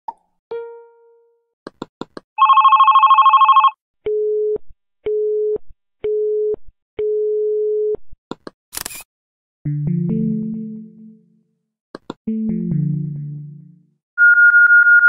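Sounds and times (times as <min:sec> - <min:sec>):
fast electronic phone ring: 0:02.4 - 0:03.8
steady ringback tone: 0:02.4 - 0:03.8
short clicks: 0:08.3 - 0:09.1.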